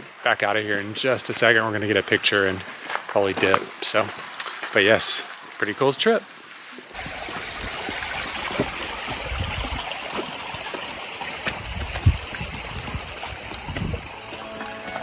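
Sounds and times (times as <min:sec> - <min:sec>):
creek water running: 0:00.0 - 0:15.0
low bumps and thump: 0:11.4 - 0:14.1.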